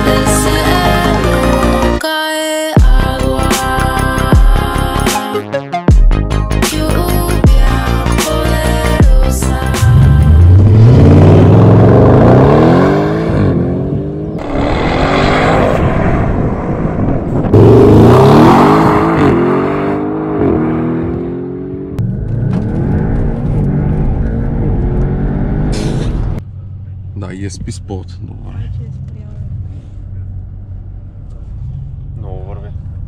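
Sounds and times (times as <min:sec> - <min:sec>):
car engine accelerating hard: 0:09.8 - 0:33.0.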